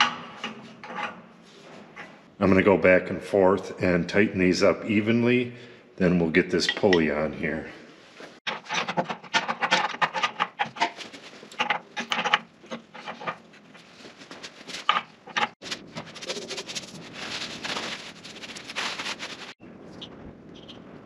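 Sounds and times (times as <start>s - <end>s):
paper towel rubbing metal: 15.5s - 19.6s.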